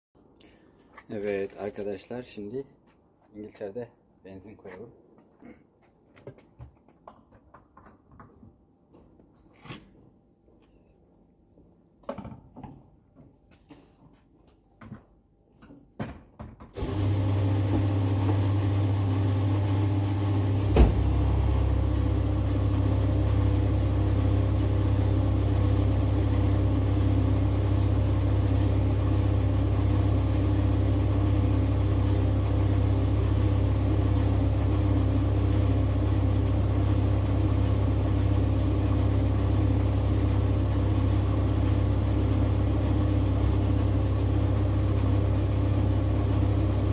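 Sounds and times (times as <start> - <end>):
fuel pump motor humming: 16.8 - 46.9.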